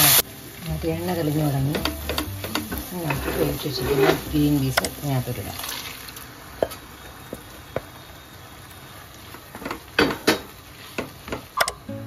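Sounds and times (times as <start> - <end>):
utensils knocking on cooking pan: 1.6 - 5.0, 9.6 - 11.8.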